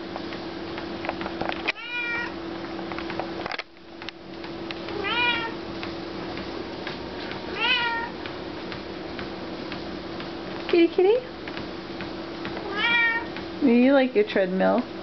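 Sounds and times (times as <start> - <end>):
treadmill low hum: 0.0 - 15.0
cat meowing: 1.7 - 2.4, 5.0 - 5.6, 7.5 - 8.1, 12.6 - 13.3.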